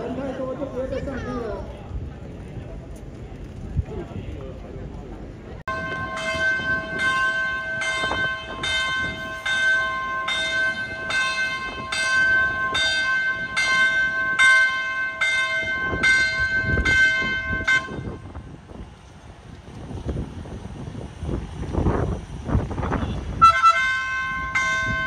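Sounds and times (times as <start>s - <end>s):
warning bell ringing: 5.7s - 18.1s, 23.8s - 25.0s.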